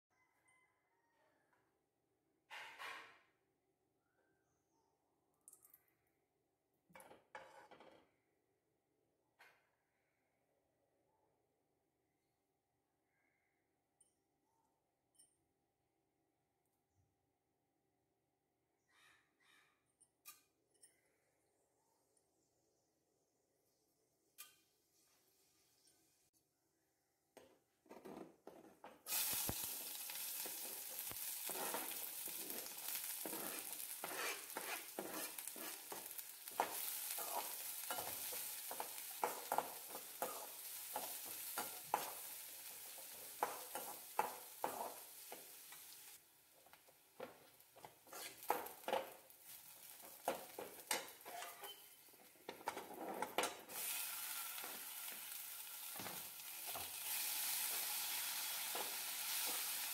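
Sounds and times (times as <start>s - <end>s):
metal spoon scraping a pan: 28.0s - 46.0s, 47.2s - 55.2s, 55.8s - 59.9s
vegetables sizzling in hot oil: 29.1s - 52.7s, 53.6s - 59.9s.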